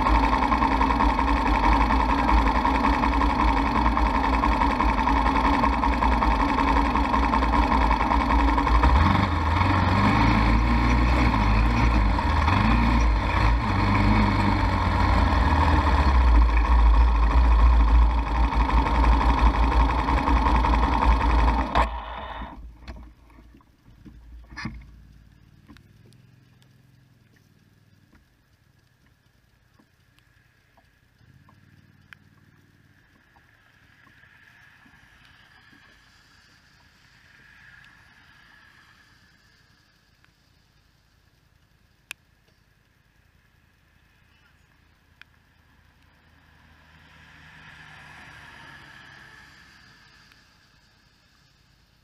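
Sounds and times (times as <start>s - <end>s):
atv engine running: 0.0s - 30.2s, 30.8s - 37.1s
faint clicks: 14.8s - 46.6s, 49.0s - 52.0s.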